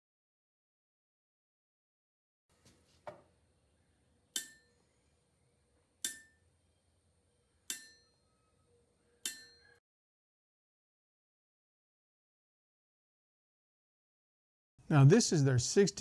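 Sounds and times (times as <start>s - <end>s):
ball bearing clinking on anvil: 4.3s - 4.8s, 6.0s - 6.5s, 7.7s - 8.4s, 9.2s - 9.8s.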